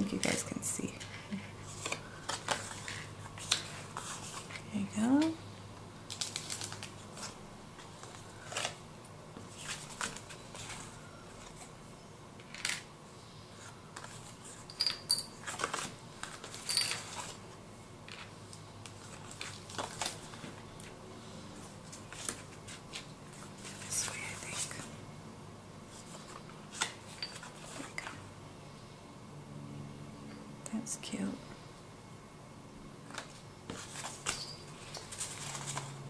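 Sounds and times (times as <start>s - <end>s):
paper rustling and flicking: 33.1s - 36.0s.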